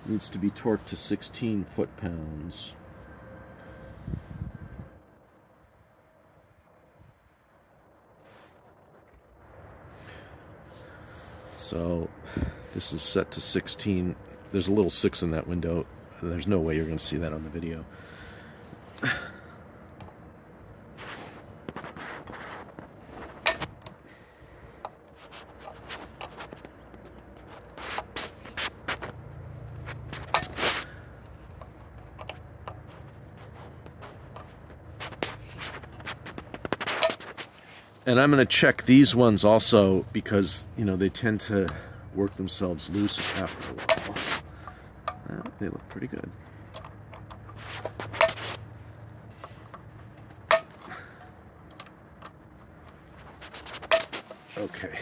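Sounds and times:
metal tool scraping screw: 29.9s - 32.9s, 43.0s - 45.6s, 46.7s - 48.7s, 53.1s - 54.6s.

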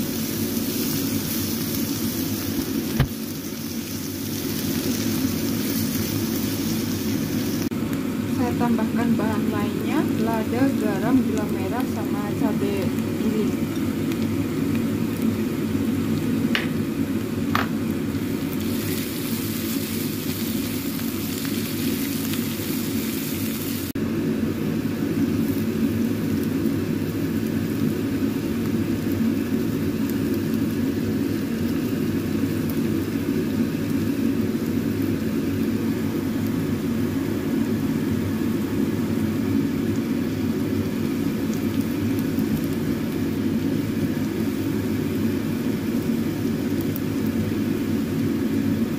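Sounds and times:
paste sizzling in a pan: 0.0s - 7.7s, 17.8s - 24.0s.

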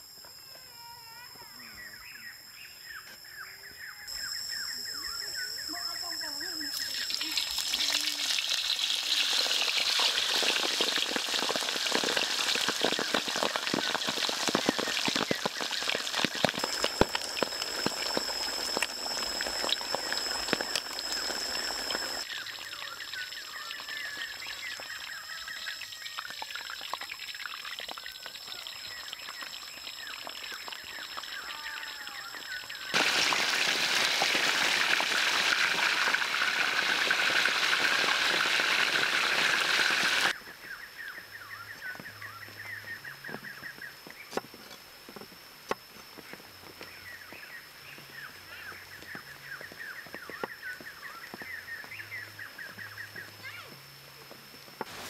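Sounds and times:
meat sizzling in hot oil: 6.7s - 40.4s.

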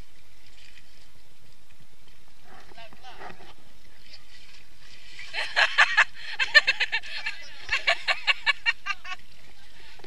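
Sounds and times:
steady background hiss: 0.0s - 10.0s
people laughing: 5.2s - 10.0s.

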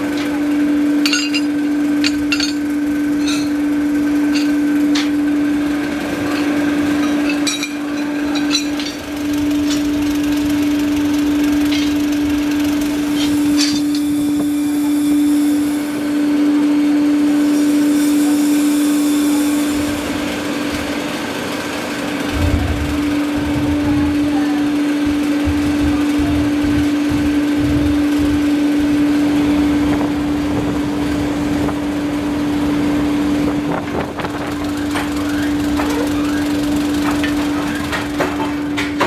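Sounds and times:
electric blower humming: 0.0s - 39.0s
steel bars clanking: 1.0s - 3.6s, 6.2s - 20.2s.

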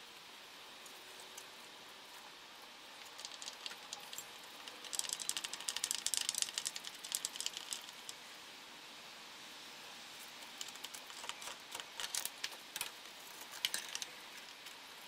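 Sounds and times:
small clicks and rattles: 2.6s - 8.2s, 10.4s - 14.9s.

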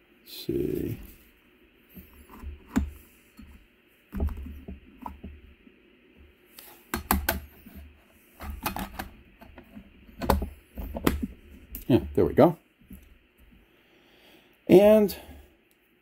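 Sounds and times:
plastic parts clicking and knocking: 2.0s - 5.4s, 6.9s - 7.5s, 8.4s - 11.4s.

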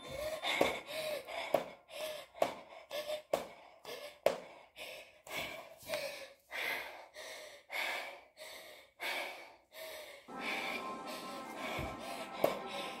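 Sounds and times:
woman panting hard: 0.0s - 13.0s
music with held notes: 10.3s - 13.0s.

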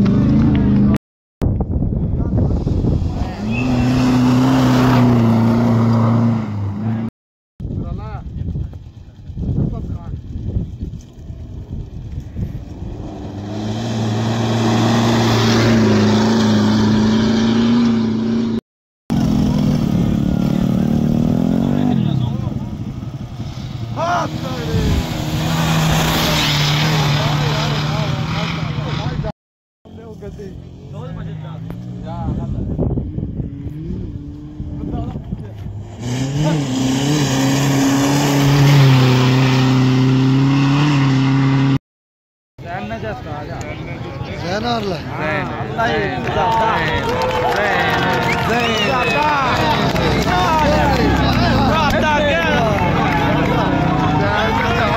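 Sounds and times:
car engine passing at speed: 2.6s - 7.1s, 12.6s - 18.6s, 19.2s - 29.3s, 31.7s - 41.8s.

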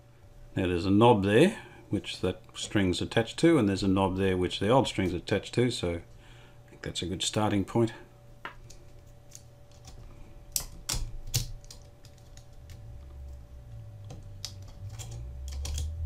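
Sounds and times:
faint low rumble: 12.4s - 16.0s.

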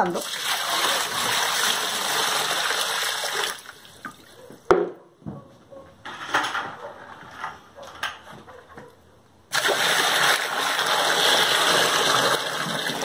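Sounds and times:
water pouring into plastic tub: 0.0s - 4.3s, 9.5s - 13.0s.

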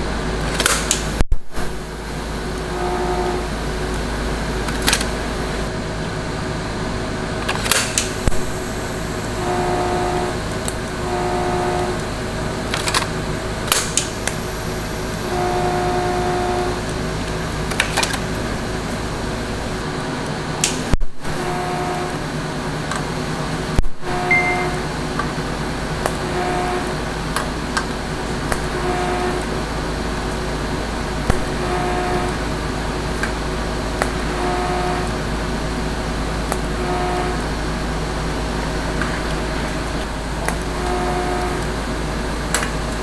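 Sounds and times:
welding arc buzzes: 0.0s - 43.0s
workshop hum: 0.0s - 43.0s
sharp clicks: 0.5s - 1.2s, 13.7s - 14.4s, 20.6s - 21.0s.

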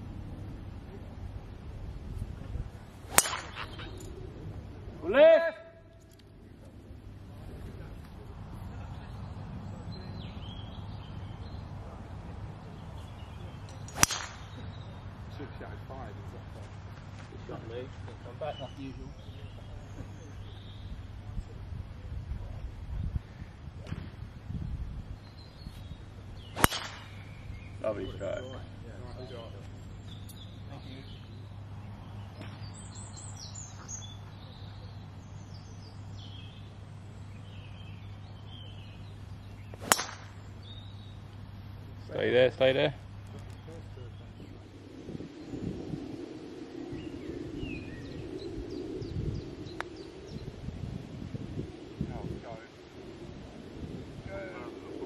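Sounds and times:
steady low hum: 0.0s - 5.0s, 5.8s - 55.0s
songbirds chirping: 0.0s - 55.0s
golf club striking ball: 3.1s - 4.0s, 13.7s - 14.8s, 26.4s - 27.7s, 39.7s - 41.1s.

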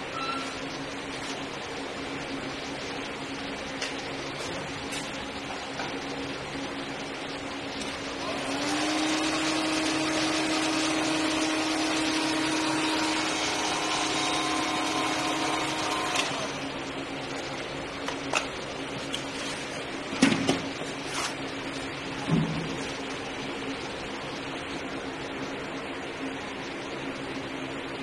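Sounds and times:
small electric motor humming: 8.2s - 16.9s.

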